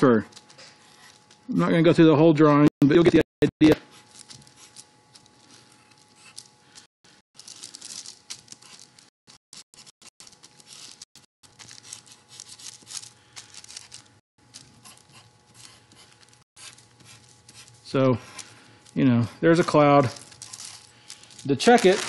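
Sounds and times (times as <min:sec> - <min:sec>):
pencil scratching on paper: 0:09.5 - 0:10.2, 0:14.7 - 0:18.4.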